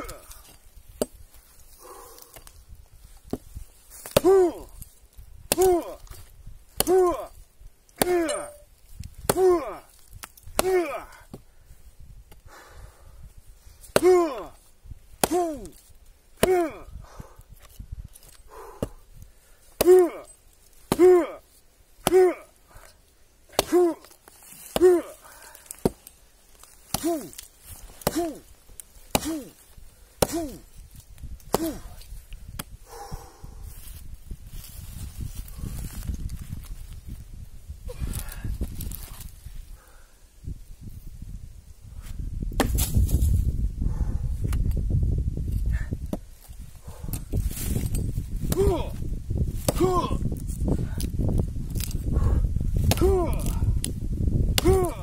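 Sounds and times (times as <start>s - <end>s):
hatchet chopping log: 3.3s - 4.6s, 5.5s - 6.2s, 6.8s - 7.2s, 8.0s - 8.6s, 9.2s - 11.4s, 13.9s - 14.5s, 15.2s - 16.8s, 19.8s - 21.4s, 22.0s - 22.4s, 23.5s - 26.1s, 26.9s - 28.4s, 29.1s - 29.6s, 30.2s - 30.6s, 31.4s - 32.8s, 42.5s - 42.9s, 48.4s - 48.9s, 49.6s - 50.1s, 52.8s - 55.0s.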